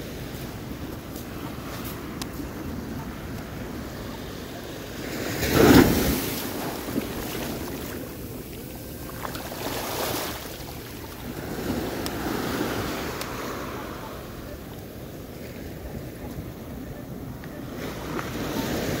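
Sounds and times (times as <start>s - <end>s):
ocean surf washing up: 0.0s - 16.7s.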